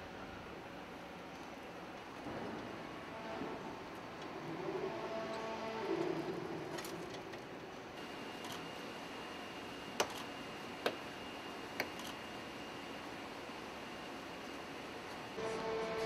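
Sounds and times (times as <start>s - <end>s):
steady background hiss: 0.0s - 16.0s
faint high whine: 7.9s - 16.0s.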